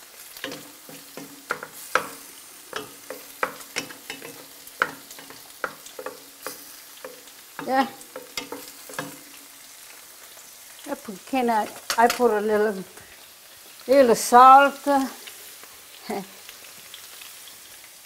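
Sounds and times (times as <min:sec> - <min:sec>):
frying sizzle: 0:00.0 - 0:18.0
spatulas knocking and scraping pot: 0:00.4 - 0:09.4.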